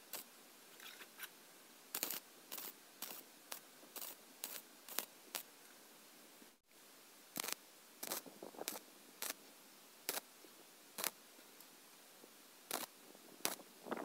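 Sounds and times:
welder arc bursts: 0.0 - 0.3, 1.9 - 5.5, 7.4 - 9.4, 11.0 - 11.2, 12.7 - 13.7.

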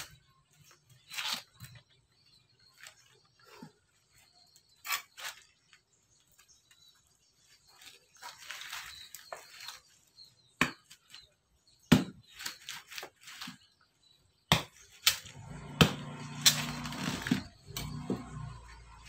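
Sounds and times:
fibrous tearing and scraping: 0.0 - 6.3.

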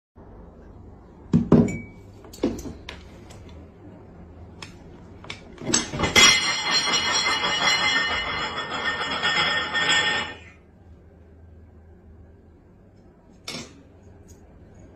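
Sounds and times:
cutlery and crockery clinking: 5.6 - 10.5.

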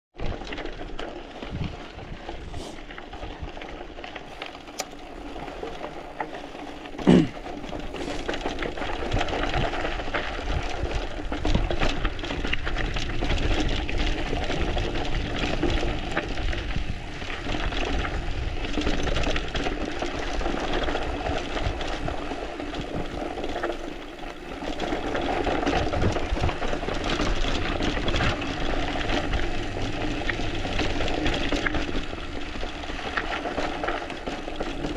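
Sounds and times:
bike tyres crunching on dirt: 0.2 - 34.9
bike clicks and knocks: 4.2 - 9.8.

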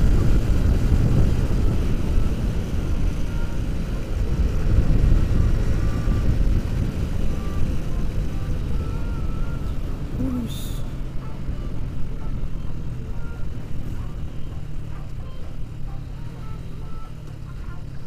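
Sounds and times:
wind buffeting microphone: 0.0 - 10.2
motorcycle engine: 0.0 - 18.0.

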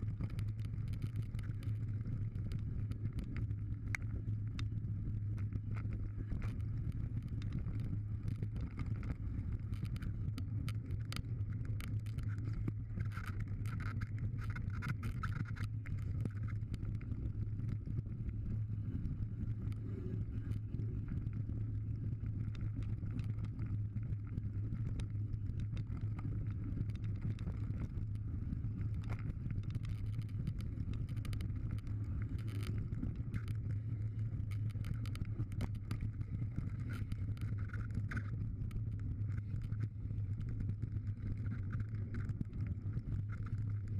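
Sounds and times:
rumble of wind and tyres: 0.0 - 43.9.

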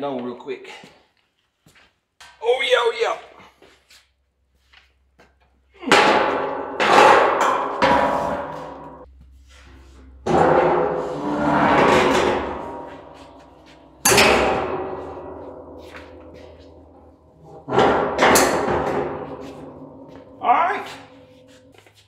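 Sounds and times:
steel beam struck and ringing: 10.2 - 21.8.

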